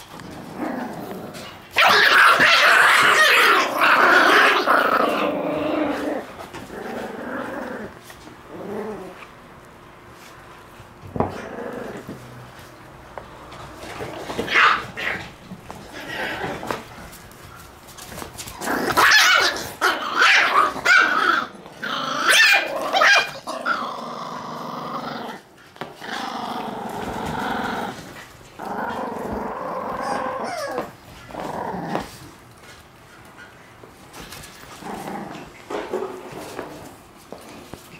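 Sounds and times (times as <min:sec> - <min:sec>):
puppies growling: 0:00.0 - 0:09.7, 0:11.0 - 0:37.9
puppies barking: 0:01.7 - 0:05.7, 0:14.4 - 0:16.8, 0:18.8 - 0:24.0.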